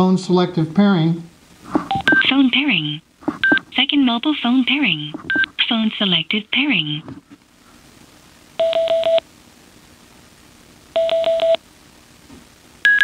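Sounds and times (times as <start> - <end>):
headset quick beeps: 1.9 - 2.3, 3.4 - 3.6.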